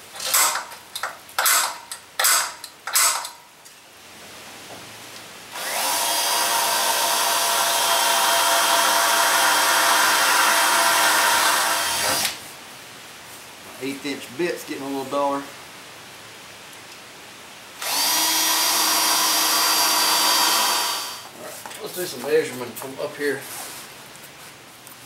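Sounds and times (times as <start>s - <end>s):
electric drill boring through steel: 5.6s - 12.4s, 17.8s - 21.3s.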